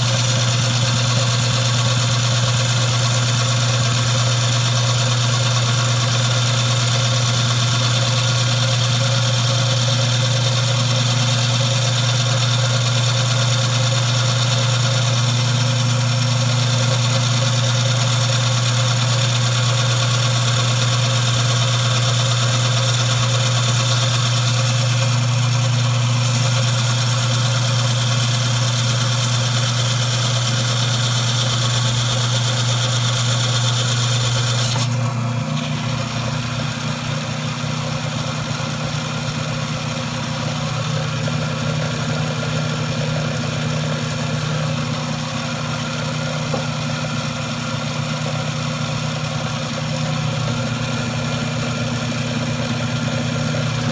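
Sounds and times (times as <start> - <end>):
band saw motor hum: 0.0 - 53.9.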